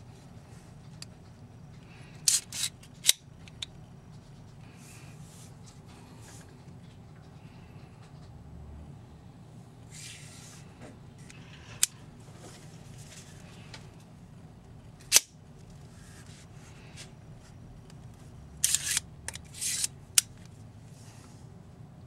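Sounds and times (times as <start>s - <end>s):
knife mechanism clicking: 2.3s - 3.6s, 18.6s - 20.3s
metal sliding and rasping: 18.6s - 19.9s.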